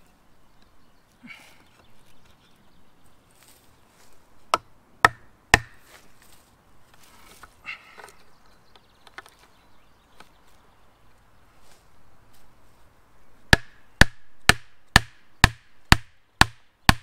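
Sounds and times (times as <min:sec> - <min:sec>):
wood handling: 0:04.4 - 0:10.6.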